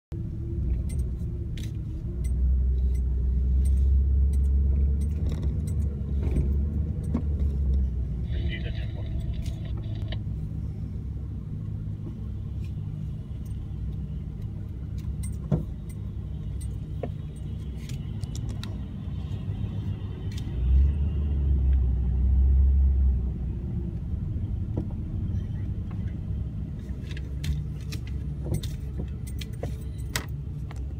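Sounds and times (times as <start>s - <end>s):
vehicle engine rumble: 0.1s - 30.9s.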